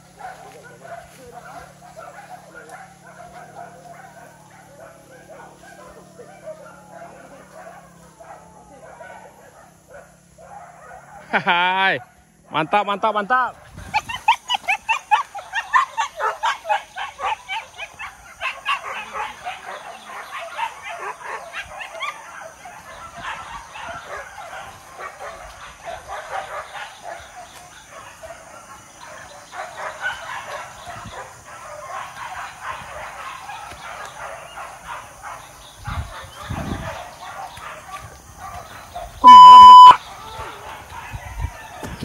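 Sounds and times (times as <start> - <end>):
dogs yelping and barking: 0.0 - 11.3, 13.6 - 42.0.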